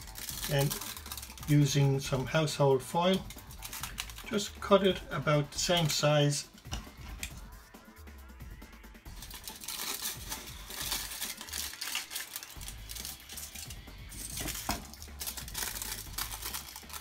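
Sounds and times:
scissors cutting foil: 0:00.0 - 0:01.5, 0:03.2 - 0:04.4, 0:09.1 - 0:17.0
aluminium foil crinkling: 0:00.0 - 0:01.8, 0:03.1 - 0:04.4, 0:09.1 - 0:17.0.

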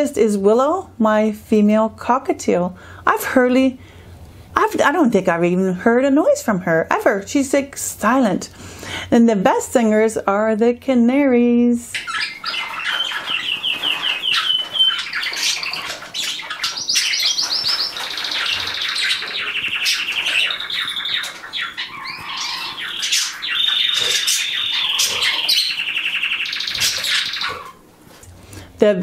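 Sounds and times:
canary singing trills: 0:11.8 - 0:27.8.

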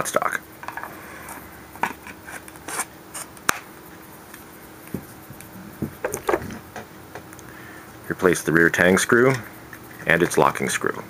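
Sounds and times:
clicks and knocks of wood on metal: 0:05.8 - 0:07.3.

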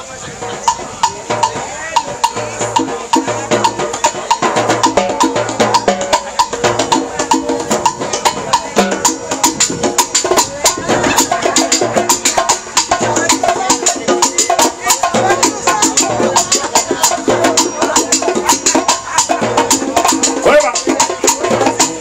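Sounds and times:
congas and drums: 0:00.0 - 0:22.0.

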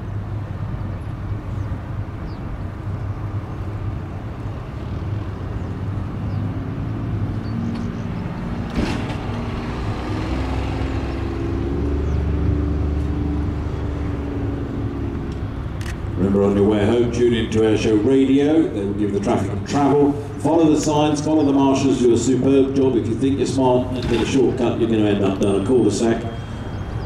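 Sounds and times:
jet engine rumble: 0:00.0 - 0:27.0
droning hum shifting in pitch: 0:09.4 - 0:27.0.

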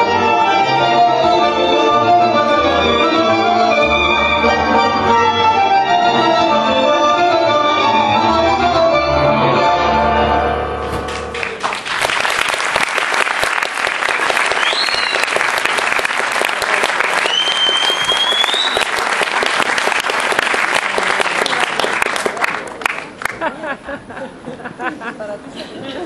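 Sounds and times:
tango music: 0:00.0 - 0:11.6
audience applause: 0:11.0 - 0:23.6
rising whistles: 0:14.5 - 0:15.4, 0:17.2 - 0:19.0.

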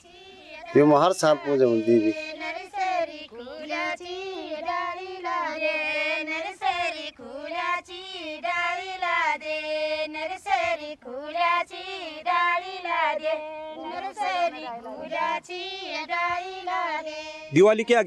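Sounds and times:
women singing folk song: 0:00.0 - 0:18.0.

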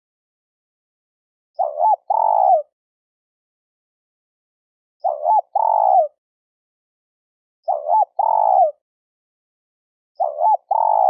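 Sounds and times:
dove cooing: 0:01.6 - 0:02.7, 0:05.0 - 0:06.2, 0:07.7 - 0:08.8, 0:10.2 - 0:11.0.

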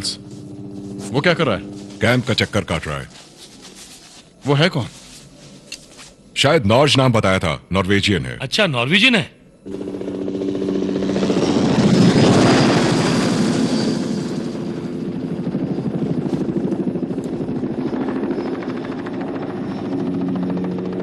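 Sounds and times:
helicopter flying past: 0:00.0 - 0:02.9, 0:09.6 - 0:21.0.

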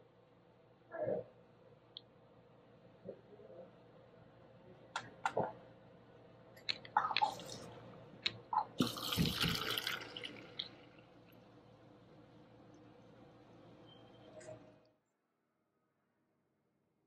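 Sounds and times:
soda pouring into a paper cup: 0:08.8 - 0:11.2.

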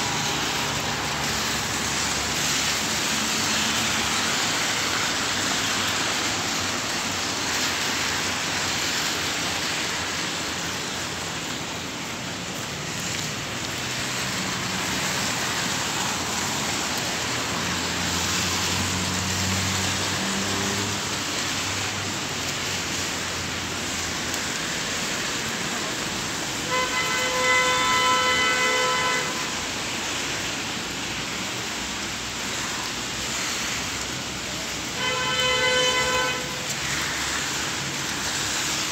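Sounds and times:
rain hiss: 0:00.0 - 0:38.9
traffic on wet streets: 0:00.0 - 0:38.9
car horn honking: 0:26.7 - 0:29.5, 0:35.0 - 0:36.6.

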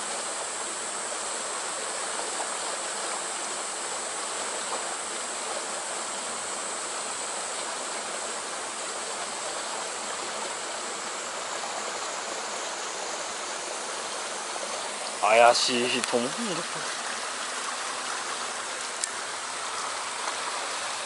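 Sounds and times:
stream water rushing over rocks: 0:00.0 - 0:21.0.

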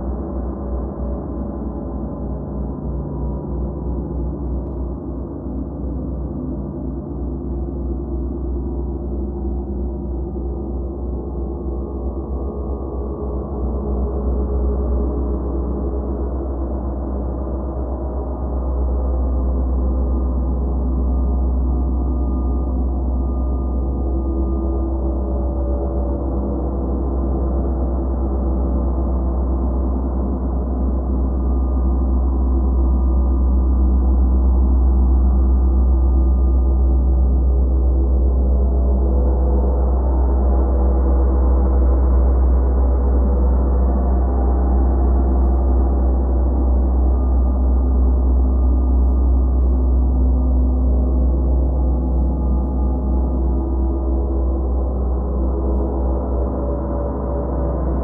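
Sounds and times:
deep low hum: 0:00.0 - 0:58.0.

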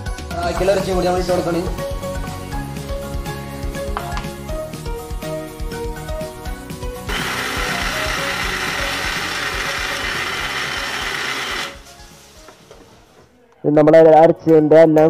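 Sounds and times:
music: 0:00.0 - 0:15.0
mixer grinder whirring: 0:07.1 - 0:11.9.

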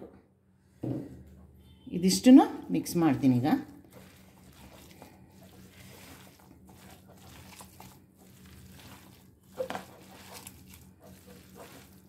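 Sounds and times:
hand kneading damp dough: 0:02.8 - 0:12.0.

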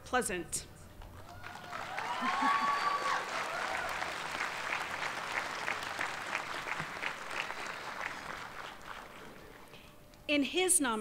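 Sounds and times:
audience applauding: 0:01.0 - 0:09.8.

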